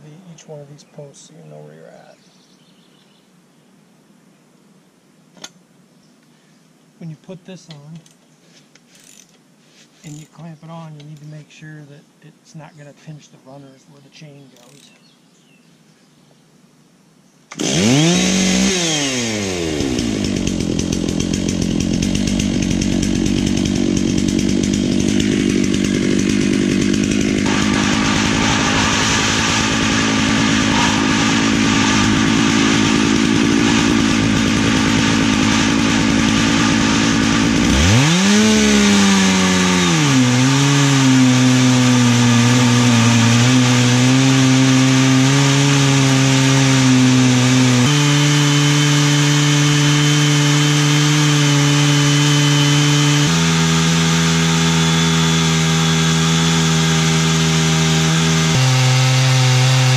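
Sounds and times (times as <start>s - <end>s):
chainsaw cutting log: 8.9s - 9.3s, 10.0s - 11.3s, 14.6s - 15.0s, 17.5s - 59.9s.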